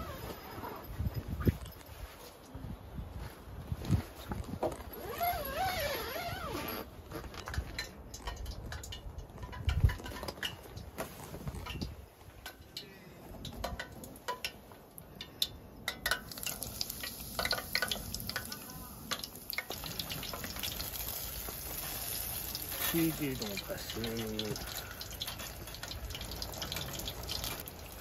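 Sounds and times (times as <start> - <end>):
deep-frying sizzle and pops: 7.8 - 12.7, 13.4 - 28.0.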